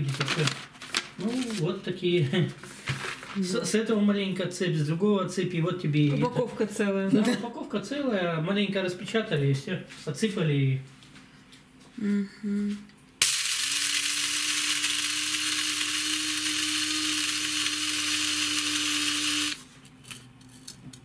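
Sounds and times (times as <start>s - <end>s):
coffee grinder whirring: 13.2s - 20.2s.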